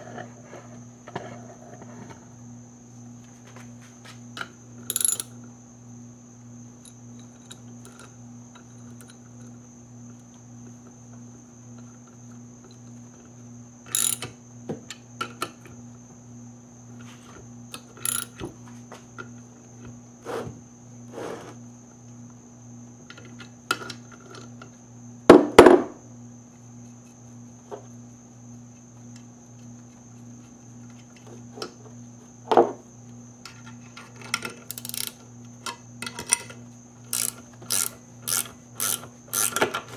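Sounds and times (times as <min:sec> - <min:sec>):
wrench metallic clicks: 0:13.9 - 0:14.3, 0:18.0 - 0:18.4, 0:34.7 - 0:35.2, 0:37.1 - 0:39.8.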